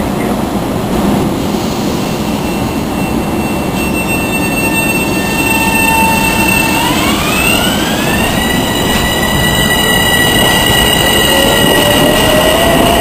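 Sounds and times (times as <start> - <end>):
train wheels rumbling on rails: 0.0 - 13.0
train motor whine: 3.7 - 13.0.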